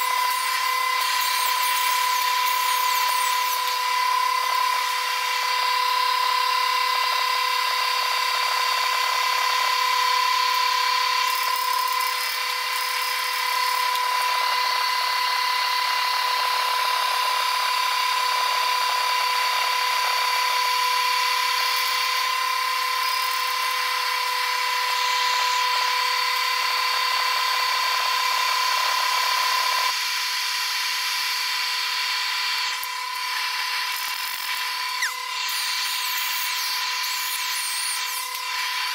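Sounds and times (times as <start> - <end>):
welding arc crackling and hissing: 0.0 - 5.7, 30.4 - 38.9
steady high whine: 0.0 - 38.9.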